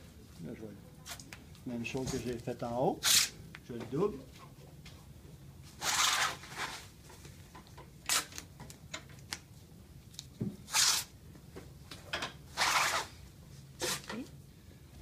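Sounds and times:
tape ripping off roll: 0:05.8 - 0:06.8, 0:08.0 - 0:08.5, 0:10.6 - 0:11.1, 0:12.5 - 0:13.1.

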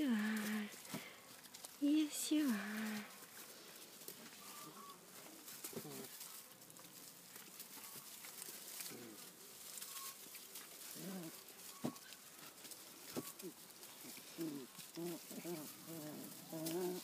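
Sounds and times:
puppies grunting and whimpering: 0:04.1 - 0:06.4, 0:07.8 - 0:17.0.

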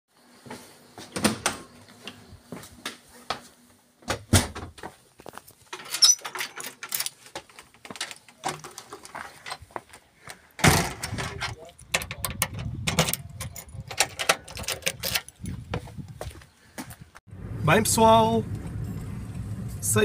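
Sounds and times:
footsteps: 0:00.4 - 0:05.9, 0:07.1 - 0:10.5, 0:15.4 - 0:17.1
door opening and shutting: 0:01.1 - 0:01.7, 0:05.7 - 0:07.2, 0:10.6 - 0:15.4.

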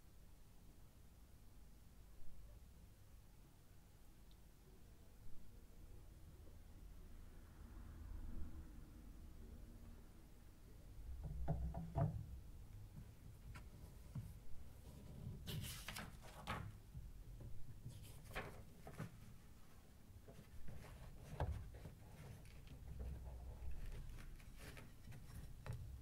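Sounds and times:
scraping rustle: 0:20.3 - 0:26.0.

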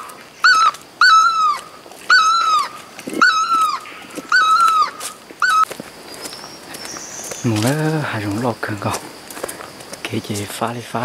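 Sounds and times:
animal whining calls: 0:00.0 - 0:05.7.

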